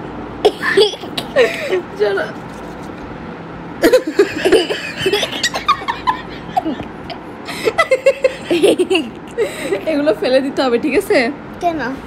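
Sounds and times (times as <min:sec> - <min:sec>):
woman and boy giggling: 0:03.8 - 0:10.1.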